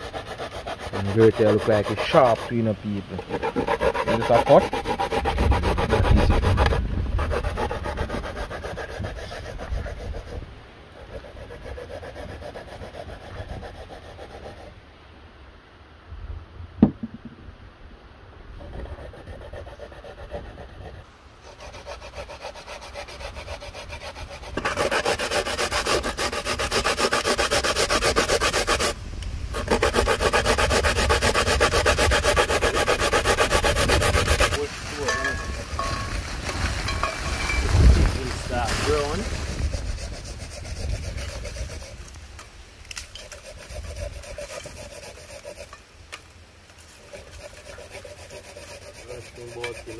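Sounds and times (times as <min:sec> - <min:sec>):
coconut grated on hand grater: 0:00.0 - 0:09.9, 0:21.7 - 0:29.0, 0:29.6 - 0:34.6, 0:47.1 - 0:49.9
sharp knock: 0:16.8 - 0:17.4.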